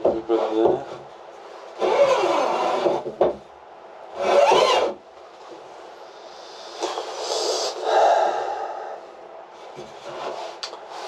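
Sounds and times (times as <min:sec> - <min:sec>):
object scraping across wood: 0:09.7 - 0:11.0.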